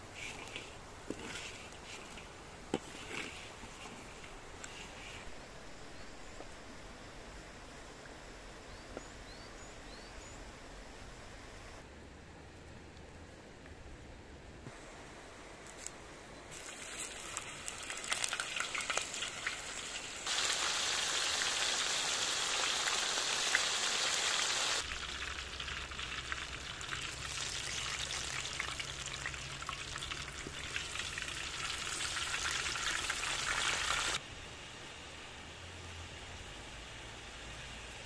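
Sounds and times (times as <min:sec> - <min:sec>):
oil sizzling in a pan: 0:16.5 - 0:34.2.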